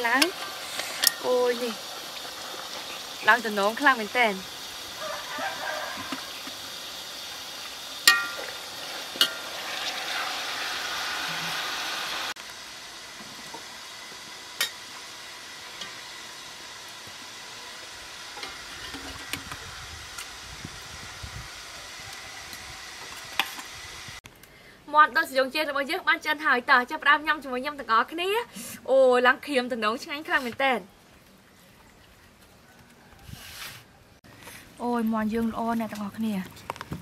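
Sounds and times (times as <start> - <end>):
juices sizzling in pot: 0.0 - 24.2
metal utensil knocking on pot: 8.1 - 8.4.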